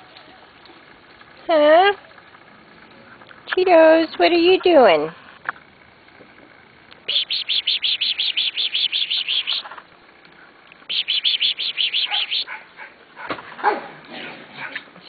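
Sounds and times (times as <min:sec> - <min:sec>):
bird singing rapid trill: 0:07.1 - 0:09.7, 0:10.9 - 0:12.5.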